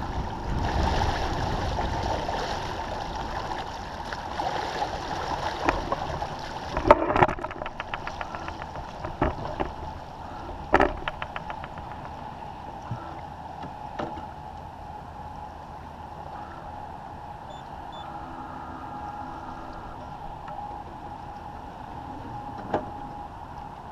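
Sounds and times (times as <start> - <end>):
water washing along a hull: 0.0 - 23.9
sharp knocks: 6.8 - 9.8, 10.7 - 12.3.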